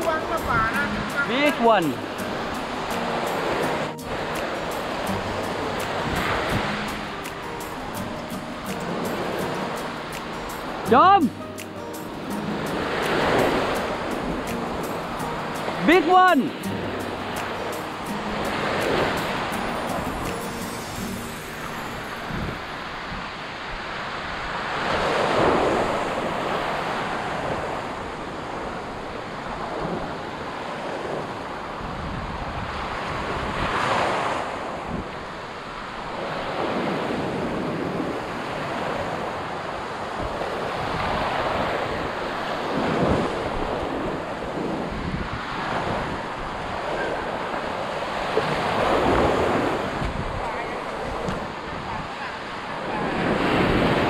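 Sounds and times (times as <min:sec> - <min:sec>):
surf breaking on beach: 0:00.0 - 0:11.3, 0:12.1 - 0:54.0
wind buffeting microphone: 0:02.0 - 0:10.9, 0:27.2 - 0:52.2.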